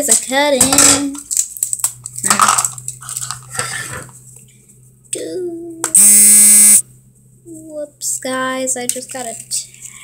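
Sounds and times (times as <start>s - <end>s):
brief steady tone: 6.0s - 6.8s.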